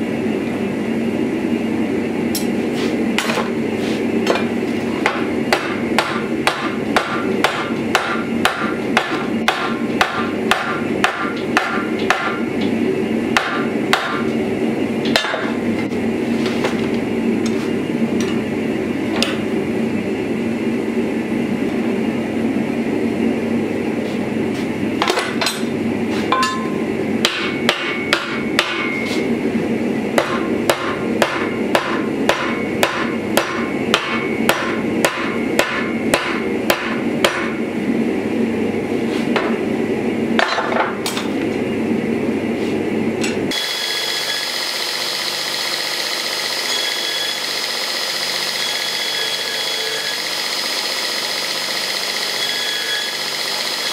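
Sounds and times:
steady hum: 0.0s - 53.9s
hammer striking hot steel: 2.3s - 2.6s, 4.2s - 12.5s, 13.3s - 14.3s, 15.0s - 15.6s, 26.3s - 29.2s, 30.2s - 37.6s.

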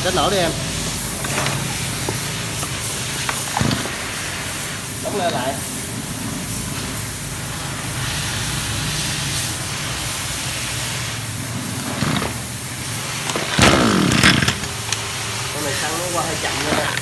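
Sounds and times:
recoil starter yank: 13.2s - 15.1s
small engine cranking: 13.5s - 14.8s.

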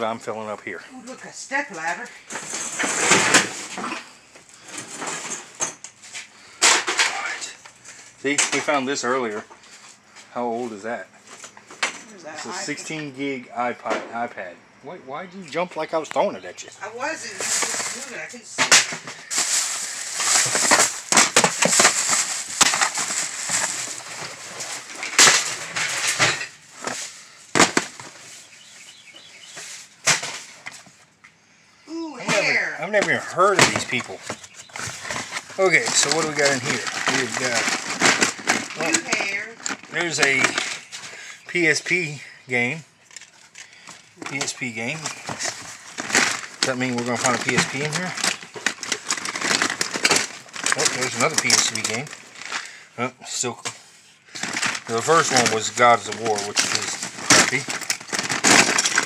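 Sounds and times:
rustling and clattering of items: 1.6s - 14.3s, 16.0s - 31.3s, 32.2s - 59.0s
things dropped into a bin: 1.8s - 7.6s, 8.2s - 9.6s, 17.0s - 28.3s, 29.6s - 30.9s, 32.3s - 41.2s, 43.1s - 52.8s, 53.6s - 59.0s
rummaging through plastic tote: 16.9s - 31.0s, 32.3s - 42.1s, 43.1s - 59.0s
loud clatter: 54.4s - 59.0s.

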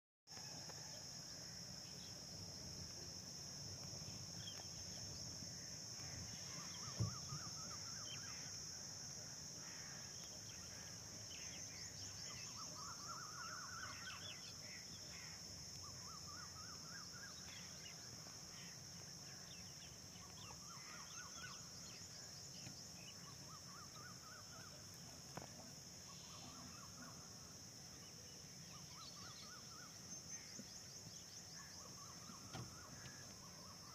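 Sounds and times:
insects droning: 0.3s - 33.9s
thump: 6.8s - 7.5s, 32.3s - 33.2s.

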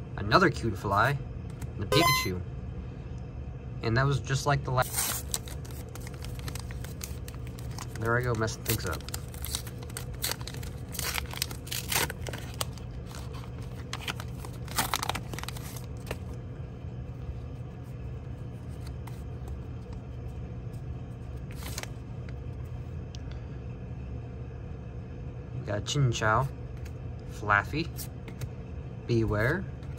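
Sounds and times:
wrapper tearing and crinkling: 4.8s - 16.4s, 21.5s - 21.9s.

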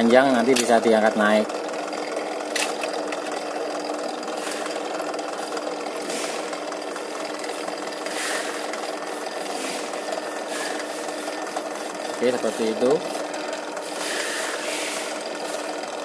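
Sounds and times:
drill press motor humming: 0.0s - 16.0s
metal scrapes: 9.5s - 11.3s.

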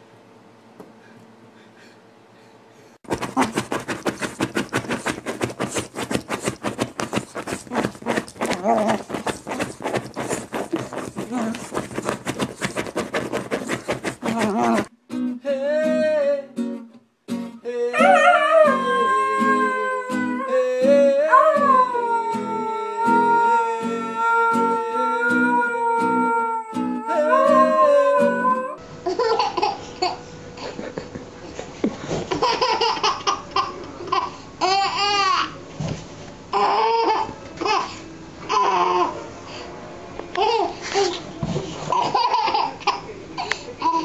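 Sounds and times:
acoustic guitar picking: 14.3s - 28.6s
dog howling: 17.9s - 28.8s
baby babbling and laughing: 32.4s - 35.6s, 36.5s - 39.2s, 40.4s - 41.2s, 41.9s - 44.0s.

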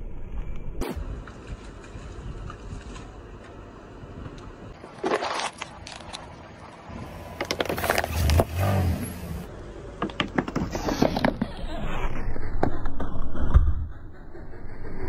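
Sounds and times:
plastic bottles crunching under tyre: 4.8s - 6.3s, 7.3s - 8.8s
low rumble: 11.6s - 15.0s.

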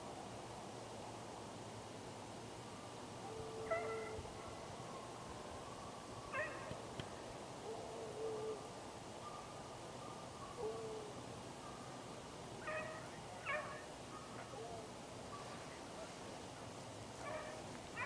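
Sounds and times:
hounds baying: 3.3s - 4.6s, 6.3s - 6.7s, 12.6s - 15.6s, 17.2s - 18.0s.

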